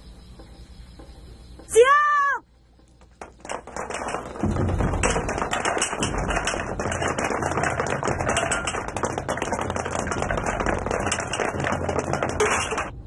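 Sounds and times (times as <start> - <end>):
boots marching on hard ground: 2.8 - 13.0.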